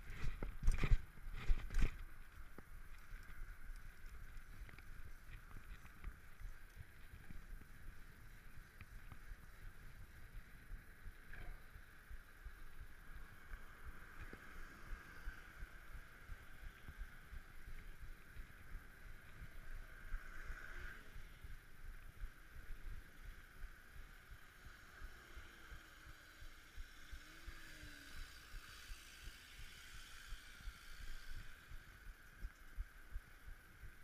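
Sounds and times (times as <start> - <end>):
bicycle road vibration and jolts: 0.0 - 34.0.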